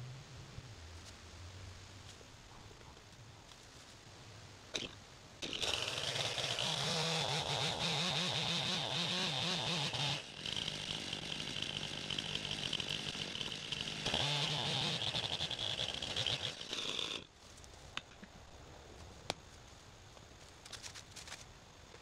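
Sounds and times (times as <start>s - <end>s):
chainsaw cutting wood: 4.8s - 17.3s.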